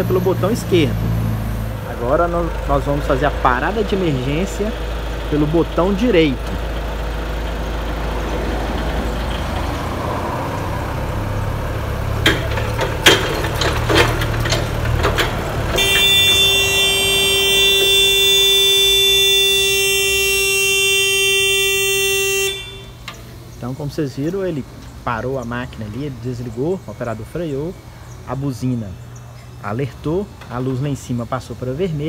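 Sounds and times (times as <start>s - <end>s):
forklift engine running: 0.0s - 32.0s
forklift alert horn steady tone: 15.1s - 24.7s.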